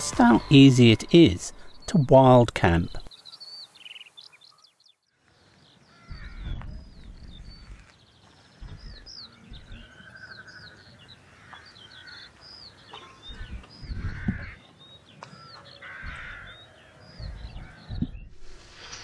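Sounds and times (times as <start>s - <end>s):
small birds chirping: 0.0s - 19.0s
low rumbles: 6.1s - 7.9s, 8.6s - 10.1s.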